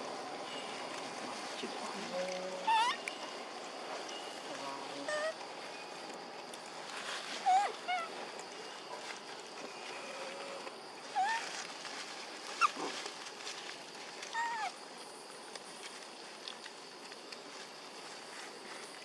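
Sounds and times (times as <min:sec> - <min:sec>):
monkeys high calls: 0:02.6 - 0:03.1, 0:07.4 - 0:08.2, 0:11.2 - 0:11.6, 0:14.4 - 0:14.8.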